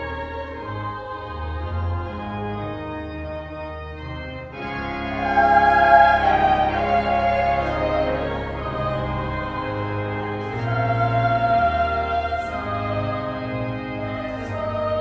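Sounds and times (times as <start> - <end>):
choir singing: 0.0 - 2.7, 4.9 - 15.0
organ chords: 0.0 - 15.0.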